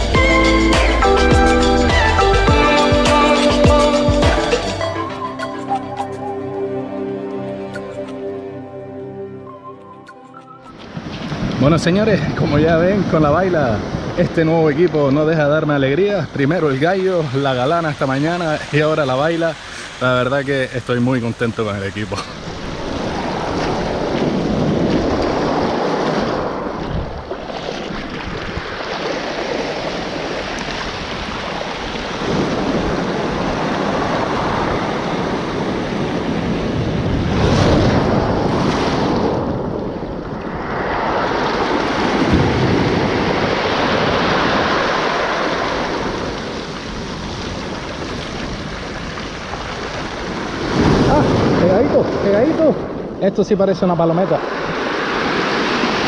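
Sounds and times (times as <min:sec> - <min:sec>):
surf breaking on pebble beach: 0:10.9 - 0:53.2, 0:54.2 - 0:56.0.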